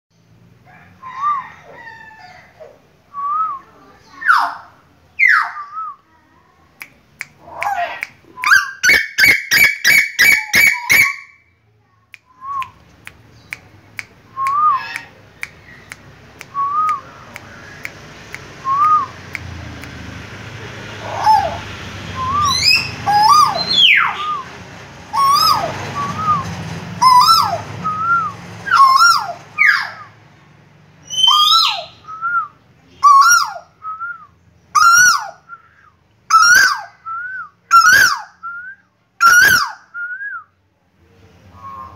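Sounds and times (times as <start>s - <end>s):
whistled rising and falling notes: 18.6s - 19.2s, 22.1s - 24.5s, 25.2s - 29.2s.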